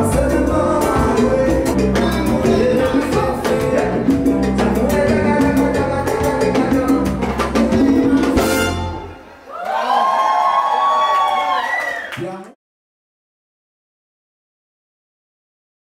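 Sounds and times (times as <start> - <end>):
salsa band playing: 0.0 - 9.4.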